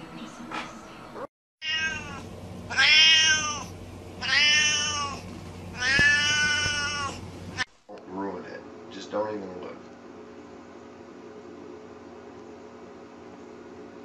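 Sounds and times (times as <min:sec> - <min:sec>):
cat meowing: 0:01.6 - 0:07.7.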